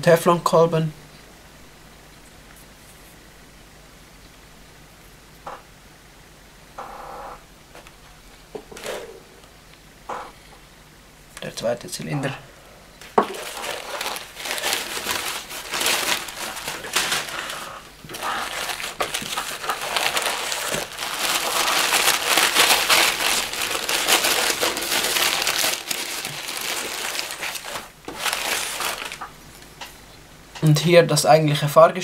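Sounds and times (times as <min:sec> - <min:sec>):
packing paper crumpling: 0:13.0 - 0:29.8.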